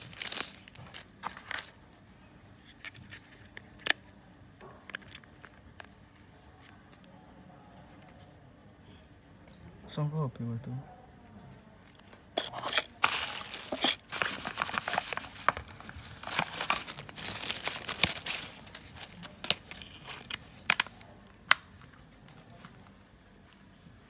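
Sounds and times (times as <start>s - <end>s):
plastic bag crinkling: 0.0s - 1.7s, 12.4s - 20.9s.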